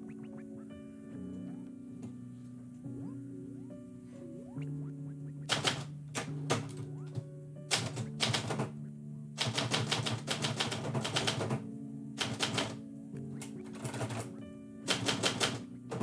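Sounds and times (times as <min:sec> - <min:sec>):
background music with held notes: 0:00.0 - 0:16.0
manual typewriter typing: 0:05.5 - 0:06.8, 0:07.7 - 0:08.7, 0:09.4 - 0:11.6, 0:12.2 - 0:12.8, 0:13.7 - 0:14.3, 0:14.9 - 0:16.0.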